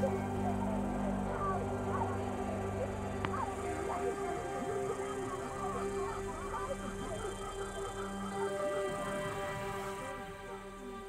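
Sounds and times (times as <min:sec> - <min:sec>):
film score sustained notes: 0:00.0 - 0:11.0.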